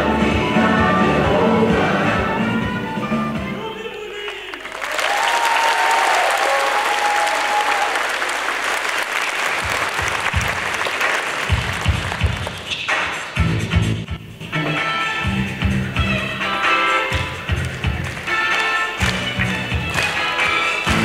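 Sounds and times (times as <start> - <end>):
music: 0.0 - 4.4, 9.6 - 21.0
audience applauding: 4.2 - 13.4, 17.6 - 21.0.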